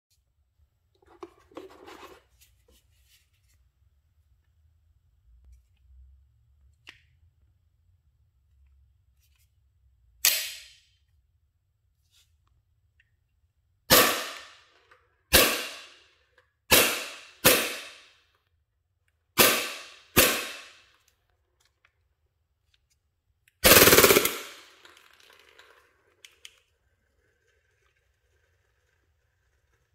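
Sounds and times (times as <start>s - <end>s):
airsoft pistol shots: 13.9s - 14.6s, 15.3s - 16.0s, 16.7s - 18.1s, 19.4s - 20.8s, 23.6s - 24.7s
full-auto burst: 13.9s - 14.6s, 15.3s - 16.0s, 16.7s - 18.0s, 19.4s - 20.8s, 23.6s - 24.8s.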